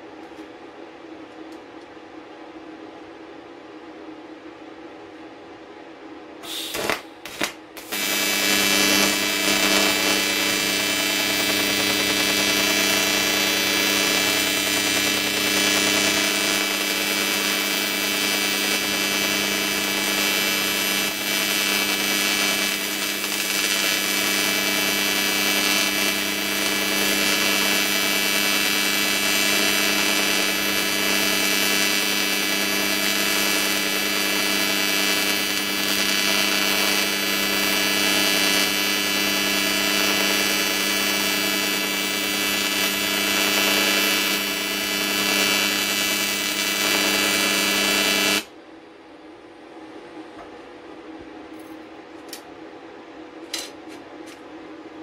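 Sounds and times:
welding arc buzzing: 6.4s - 48.5s.

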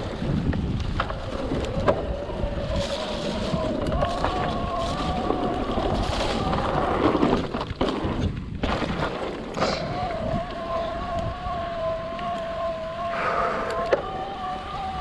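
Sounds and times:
tyres rumbling over ground: 0.0s - 11.0s
wind buffeting microphone: 0.0s - 15.0s
steady whine: 9.8s - 15.0s.

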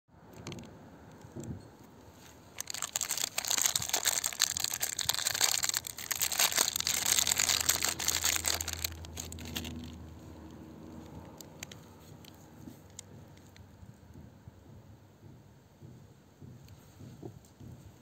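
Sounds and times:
soap wrapper crinkling and tearing: 2.6s - 10.1s.

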